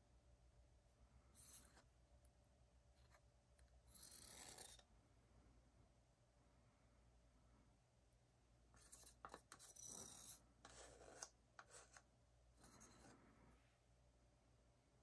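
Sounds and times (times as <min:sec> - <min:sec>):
wooden stick scraping inside cup: 0:01.4 - 0:01.9, 0:03.9 - 0:04.8, 0:08.8 - 0:12.0, 0:12.6 - 0:13.2.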